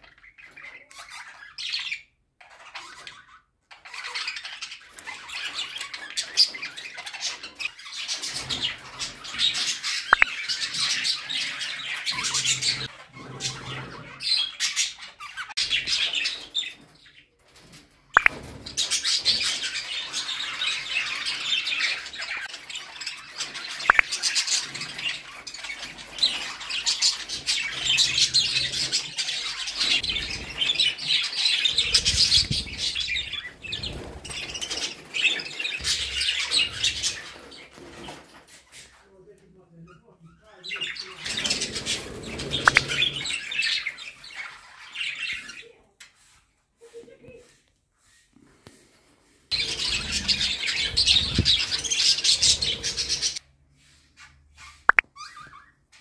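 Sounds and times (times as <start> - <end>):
budgerigars chattering: 5.4 - 16.4, 19.2 - 25.2, 40.8 - 43.9, 49.6 - 53.4.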